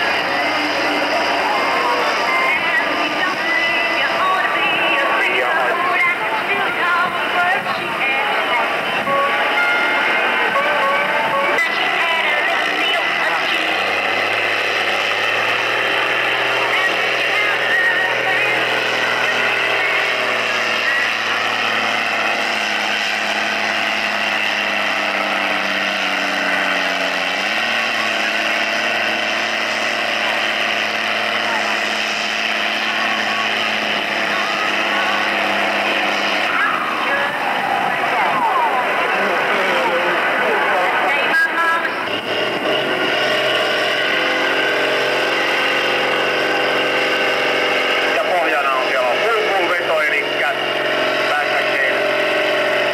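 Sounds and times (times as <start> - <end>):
tractor diesel engine labouring: 0.0 - 52.9.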